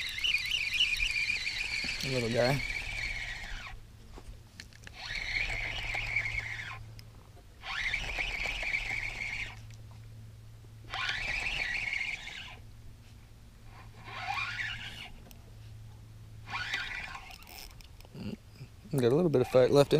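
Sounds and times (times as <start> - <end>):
fishing reel whining: 0.0 - 3.8, 4.8 - 7.0, 7.6 - 9.8, 10.9 - 12.6, 13.7 - 15.4, 16.4 - 18.3.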